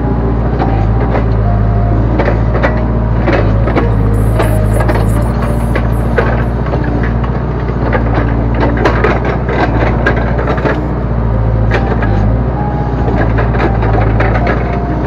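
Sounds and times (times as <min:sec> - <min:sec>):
backhoe engine running under load: 0:06.3 - 0:15.0.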